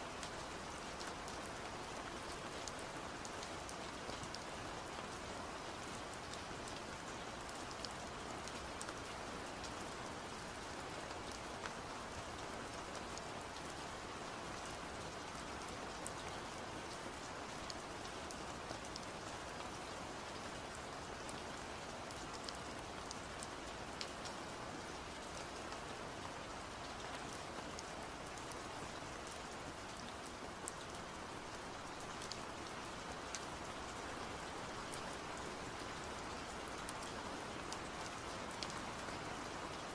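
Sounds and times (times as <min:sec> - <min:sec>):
rain-like patter and hiss: 0:00.0 - 0:39.9
faint light ticks: 0:35.8 - 0:39.8.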